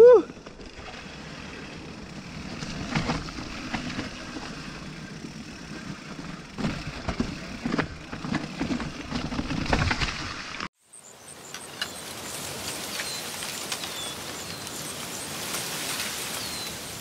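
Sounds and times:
tyres rumbling on trail: 0:00.0 - 0:10.7, 0:11.4 - 0:17.0
bike knocking and rattling: 0:00.3 - 0:10.7.

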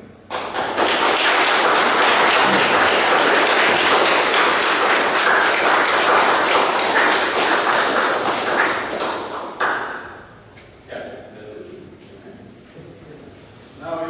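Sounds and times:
audience applauding: 0:00.3 - 0:10.3.

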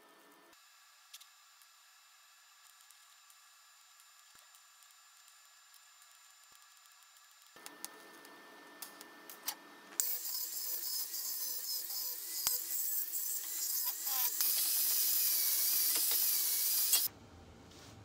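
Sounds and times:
angle grinder grinding steel: 0:10.0 - 0:17.1.

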